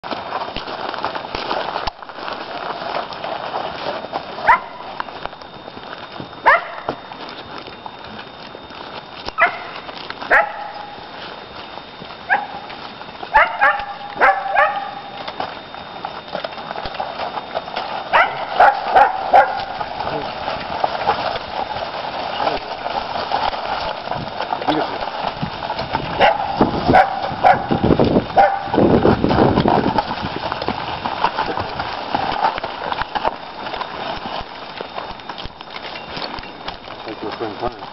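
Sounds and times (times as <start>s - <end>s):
dog barking: 4.4s - 4.8s, 6.4s - 6.9s, 9.4s - 9.7s, 10.3s - 10.9s, 12.3s - 12.6s, 13.3s - 15.0s, 18.1s - 19.7s, 26.2s - 27.7s, 28.4s - 28.7s.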